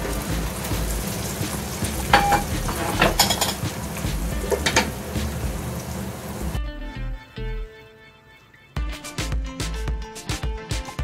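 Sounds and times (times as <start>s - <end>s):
food sizzling in a frying pan: 0.0s - 6.6s
kitchenware clinks: 2.1s - 3.7s.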